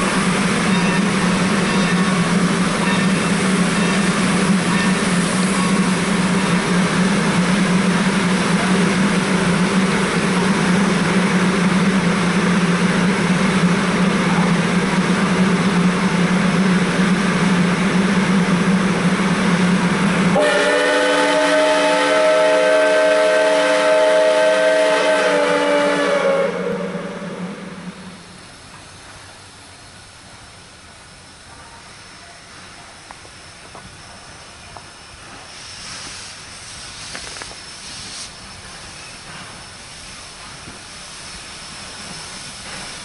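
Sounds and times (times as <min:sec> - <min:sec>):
train cars rumbling on rails: 0:00.0 - 0:43.0
steam locomotive whistle: 0:20.3 - 0:28.2.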